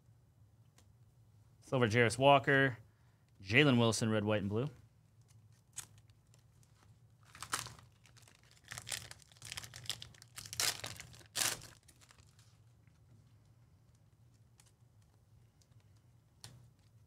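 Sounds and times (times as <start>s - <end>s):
wrapper tearing and crinkling: 5.5s - 12.6s.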